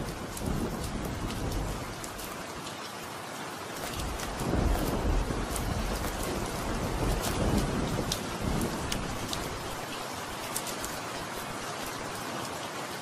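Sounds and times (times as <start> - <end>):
low thunder rumbling: 0.0 - 2.4, 3.9 - 10.0
steady rain: 0.0 - 13.0.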